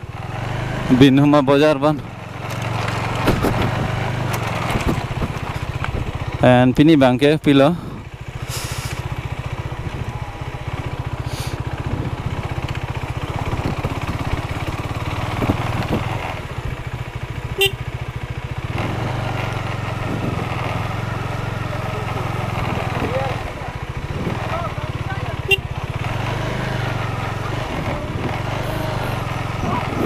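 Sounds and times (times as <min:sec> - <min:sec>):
motorcycle engine running: 0:00.0 - 0:30.0.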